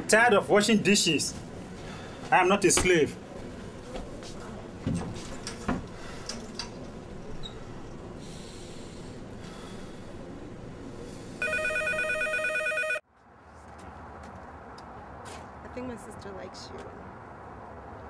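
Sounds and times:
steady background hum: 0.0s - 13.7s
telephone ringing: 11.4s - 13.0s.

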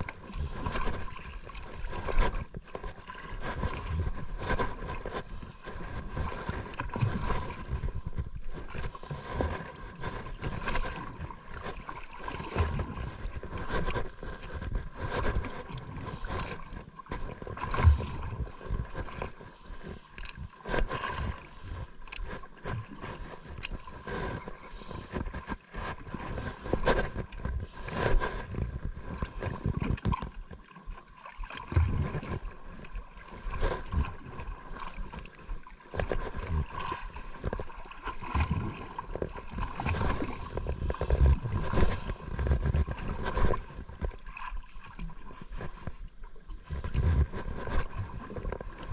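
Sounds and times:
sea water splashing: 0.0s - 48.9s.

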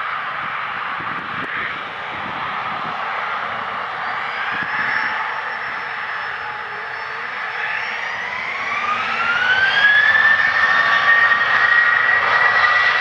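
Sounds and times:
jet engines spooling up: 0.0s - 13.0s.

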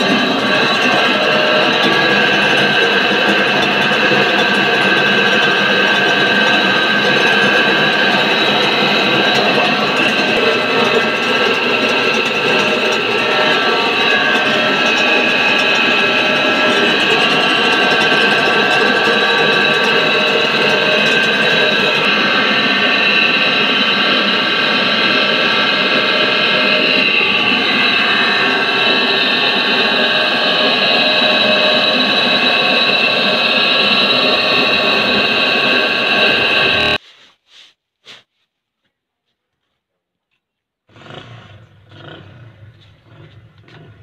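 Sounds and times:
high machine whine: 0.0s - 37.0s
rice milling machinery running: 0.0s - 37.0s.

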